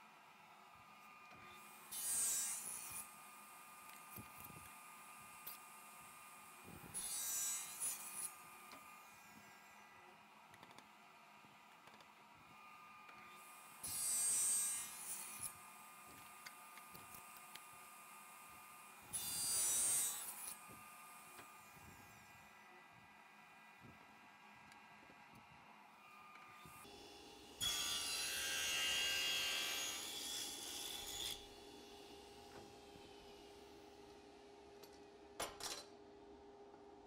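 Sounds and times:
table saw cutting wood: 1.5s - 3.8s, 6.4s - 9.8s, 13.3s - 16.0s, 18.8s - 22.0s, 26.1s - 33.7s
table saw running: 26.8s - 33.6s.

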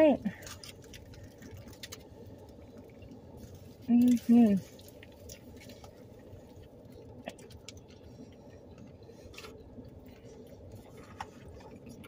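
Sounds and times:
low steady hum: 0.0s - 12.0s
foil wrappers crinkling: 0.1s - 6.7s
people chewing: 0.2s - 12.0s.

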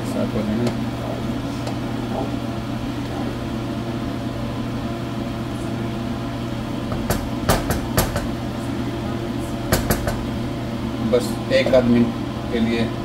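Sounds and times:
steady hum: 0.0s - 13.0s
spatula knocking on pan: 6.9s - 8.4s, 9.7s - 10.3s.

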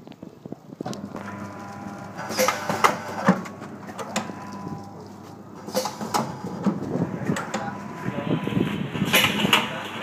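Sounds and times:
packing machine hum: 0.9s - 10.0s
sharp machine clacks: 1.2s - 5.0s, 5.6s - 6.6s.

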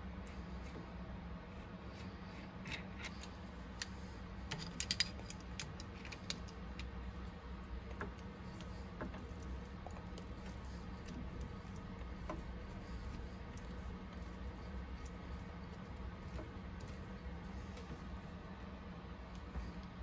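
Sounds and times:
steady low hum: 0.0s - 20.0s
small metal clicks and clinks: 4.5s - 7.0s.

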